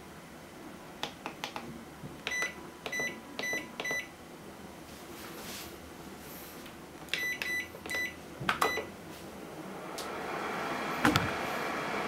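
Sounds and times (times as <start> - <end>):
microwave running hum: 0.0 - 12.0
microwave control panel beeps: 2.2 - 4.1, 7.1 - 8.9.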